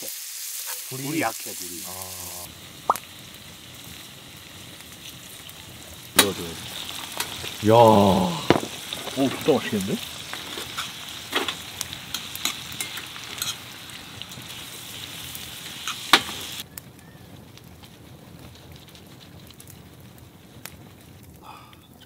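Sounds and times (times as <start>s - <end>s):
food sizzling in a pan: 0.0s - 17.2s.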